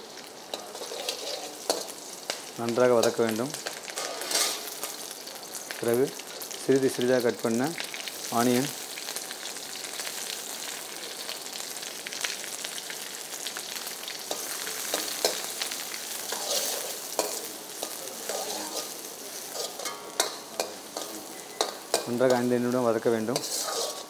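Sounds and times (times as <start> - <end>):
onions sizzling in hot oil: 0.0 - 24.0
steel ladle scraping pan: 0.5 - 1.9, 4.0 - 5.0, 16.3 - 17.4, 18.3 - 22.1, 23.3 - 24.0.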